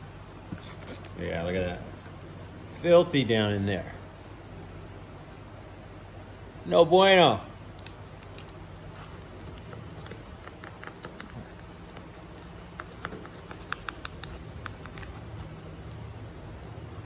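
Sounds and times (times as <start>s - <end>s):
faint low hum: 0.0s - 17.0s
screwdriver clicking on metal parts: 12.8s - 16.1s.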